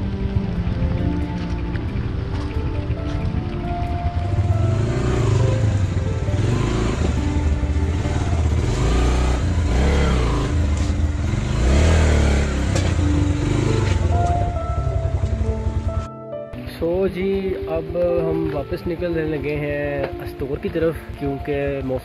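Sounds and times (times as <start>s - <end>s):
background music: 0.0s - 22.0s
motorcycle engine revving: 1.4s - 16.1s.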